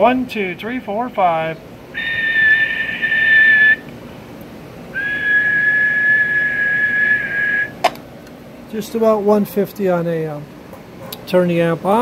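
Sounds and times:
person whistling steady notes: 2.0 - 3.8, 5.0 - 7.8.

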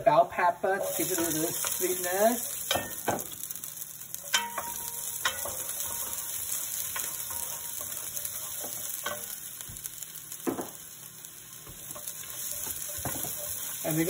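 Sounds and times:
vegetables sizzling in oil: 0.0 - 14.0
wooden spoon stirring: 11.7 - 14.0.

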